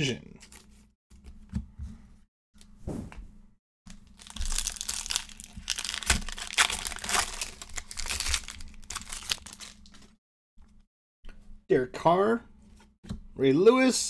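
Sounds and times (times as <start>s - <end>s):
foil wrapper crinkling: 3.9s - 10.2s.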